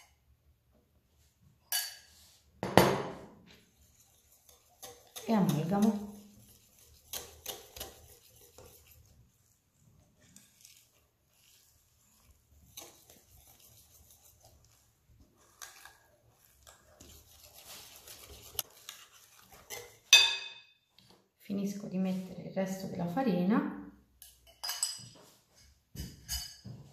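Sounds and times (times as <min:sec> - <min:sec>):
whisk stirring batter in glass bowl: 0:03.5 - 0:20.2.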